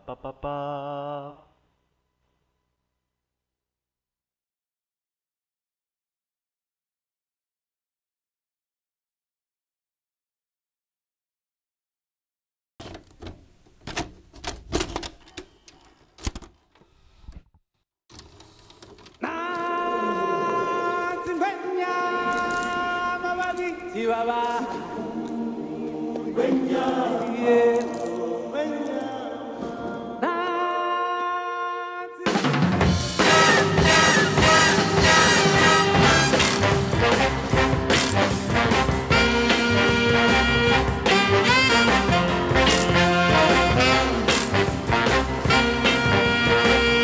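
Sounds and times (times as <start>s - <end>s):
popcorn rustling: 21.0s - 25.5s, 26.7s - 30.1s
drum-kit music: 32.2s - 47.0s.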